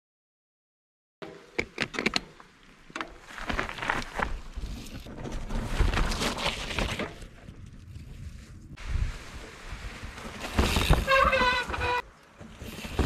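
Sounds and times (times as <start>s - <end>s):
mountain bike rattling on trail: 3.1s - 8.3s, 10.0s - 13.0s.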